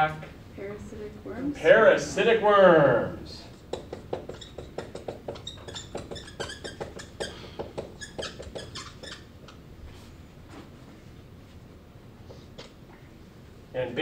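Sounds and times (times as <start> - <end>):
marker squeaking on whiteboard: 3.4 - 10.2, 12.3 - 12.8.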